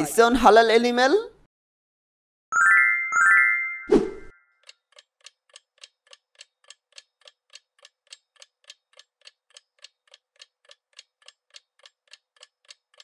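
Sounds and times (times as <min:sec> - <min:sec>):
faint clock ticking: 0:04.6 - 0:13.0.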